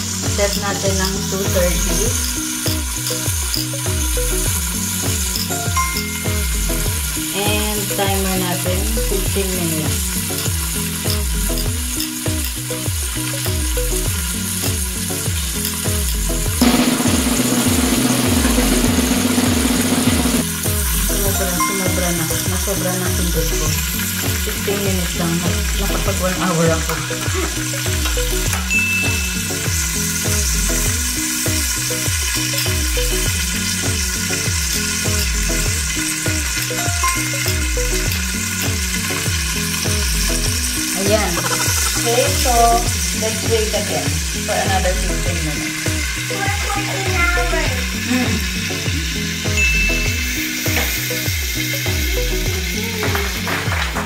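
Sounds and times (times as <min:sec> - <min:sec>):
background music with deep beat: 0:00.0 - 0:54.0
chicken sizzling in skillet: 0:00.0 - 0:54.0.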